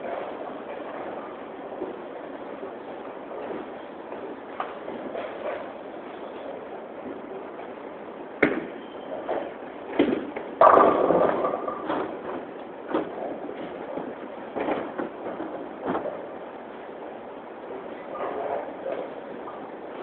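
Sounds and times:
room murmur: 0.0s - 20.0s
bowling balls and pins clattering: 3.3s - 6.4s, 8.4s - 17.0s.

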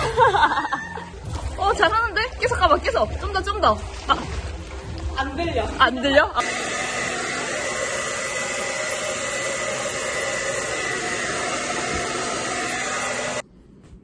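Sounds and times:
hair dryer running: 6.4s - 13.4s.

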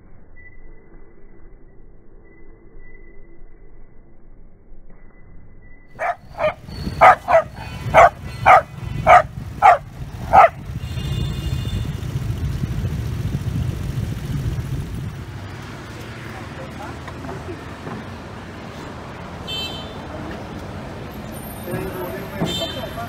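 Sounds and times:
dog barking rapidly: 6.0s - 10.7s
steady low noise: 11.9s - 15.7s.

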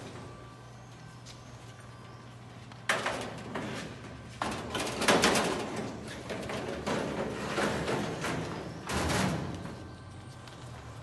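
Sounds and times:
metal baking trays clattering: 4.4s - 9.5s.

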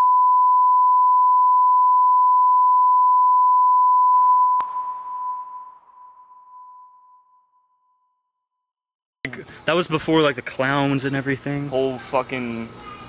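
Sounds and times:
sine test tone: 0.0s - 8.3s.

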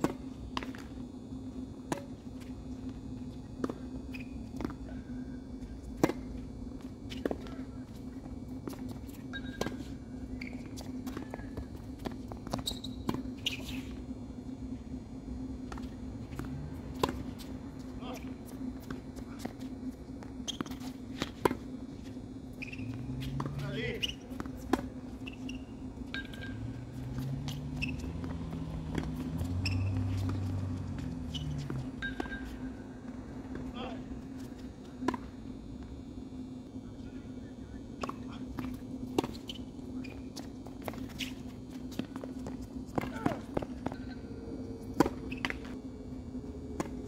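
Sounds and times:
tennis ball bouncing on court: 0.0s - 1.0s, 1.8s - 2.5s, 3.6s - 4.8s, 5.9s - 6.4s, 8.6s - 13.9s, 15.7s - 17.5s, 20.2s - 21.6s, 22.6s - 33.7s, 35.0s - 35.9s, 38.0s - 44.1s, 44.8s - 45.8s, 46.8s - 47.0s
steady low hum: 0.0s - 47.0s
shoe squeaks: 4.1s - 4.6s, 9.0s - 14.0s, 20.4s - 21.4s, 22.5s - 32.7s, 39.3s - 42.0s, 45.1s - 45.8s.

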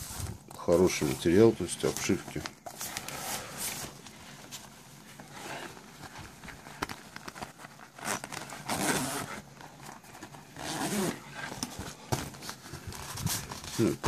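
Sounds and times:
backpack fabric rustling: 0.0s - 14.0s.

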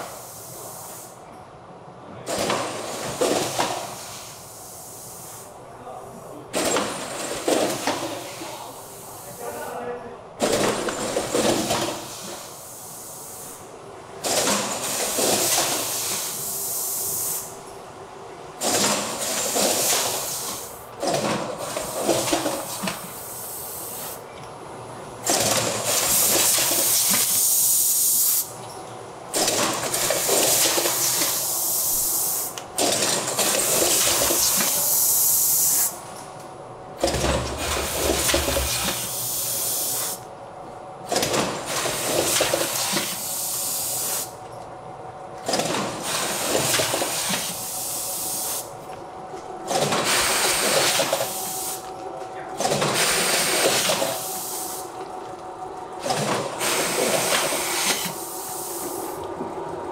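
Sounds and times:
compressed air hissing: 0.0s - 1.2s, 3.8s - 5.5s, 12.0s - 13.7s, 14.8s - 17.6s, 19.2s - 20.8s, 23.1s - 24.2s, 25.9s - 28.5s, 30.3s - 32.6s, 33.6s - 36.0s, 37.6s - 40.2s, 42.8s - 44.4s, 46.1s - 48.7s, 50.0s - 51.9s, 52.9s - 54.9s, 56.6s - 59.2s
packaging machinery running: 10.4s - 13.3s, 14.1s - 17.7s, 18.5s - 36.0s, 36.9s - 40.2s, 41.0s - 44.5s, 45.4s - 59.9s.

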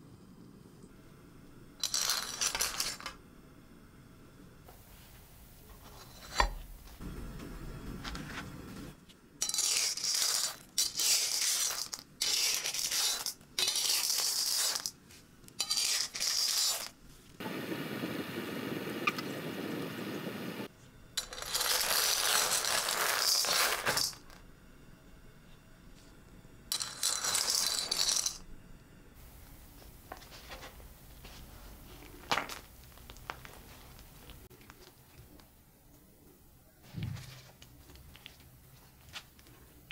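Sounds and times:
pebbles clattering in metal wok: 1.8s - 3.2s, 9.4s - 15.0s, 15.6s - 17.0s, 21.2s - 24.4s, 26.7s - 28.4s.

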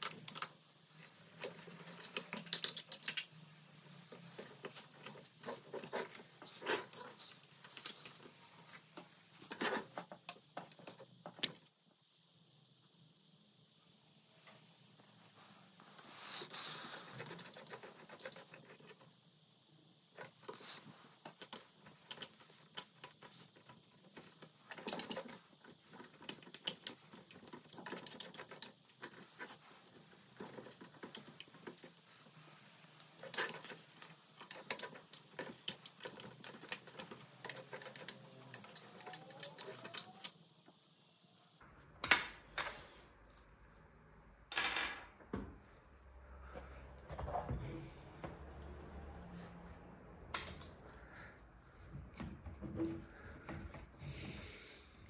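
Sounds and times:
small clicks taps and scrapes: 0.0s - 11.7s, 16.6s - 19.2s, 20.1s - 40.8s.

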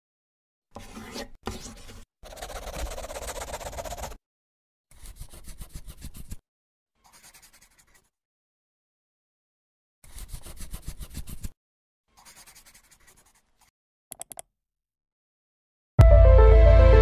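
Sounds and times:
pencil scribbling on paper: 0.8s - 4.2s, 4.9s - 6.4s, 7.0s - 8.2s, 10.0s - 13.7s.

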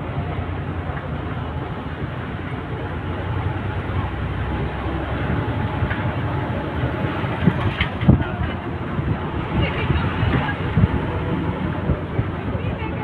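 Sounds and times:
vehicle road and wind noise: 0.0s - 13.0s.

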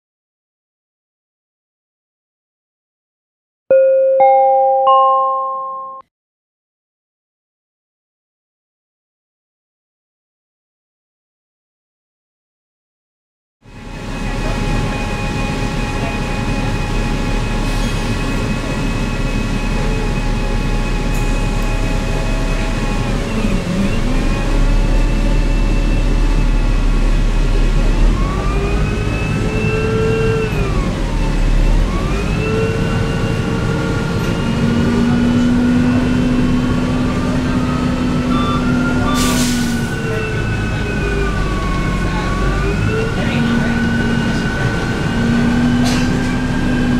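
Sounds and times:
bus engine drone with whine: 13.6s - 46.9s.

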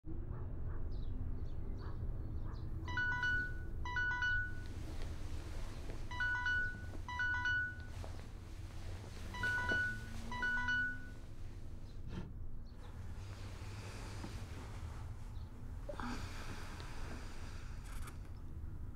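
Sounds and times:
low steady hum: 0.1s - 18.9s
phone alert chimes: 2.9s - 4.9s, 6.1s - 8.2s, 9.3s - 11.2s.

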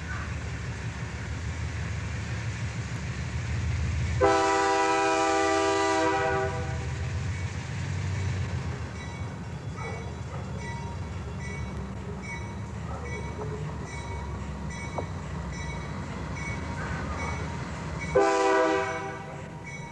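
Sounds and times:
diesel locomotive rumbling: 0.0s - 19.9s
locomotive air horn chord: 4.2s - 6.9s, 18.1s - 19.5s.

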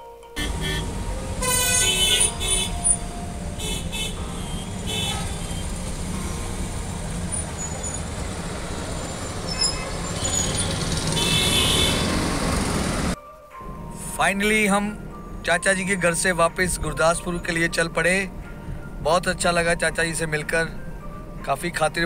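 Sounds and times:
vehicle horns tooting: 0.4s - 13.2s
car road and engine rumble: 0.4s - 22.0s.

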